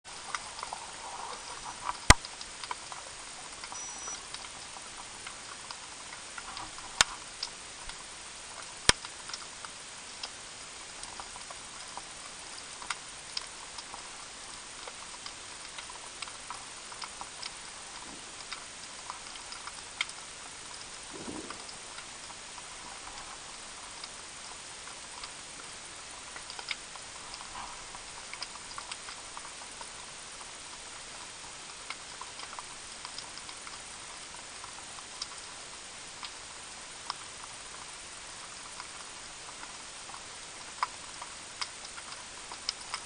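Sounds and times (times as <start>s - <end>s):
underwater hiss with crackling clicks: 0.1s - 43.0s
sharp clicks: 20.8s - 22.4s.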